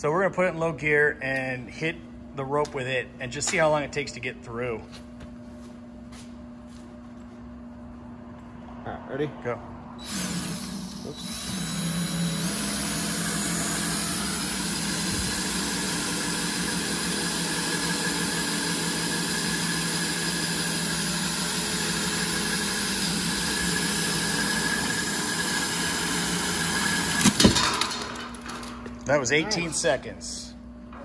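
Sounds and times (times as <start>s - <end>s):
cordless drill whining: 10.0s - 27.5s.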